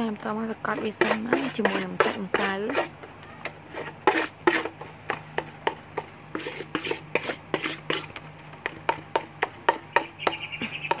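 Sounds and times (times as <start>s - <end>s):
utensil scraping steel basin: 0.4s - 10.3s.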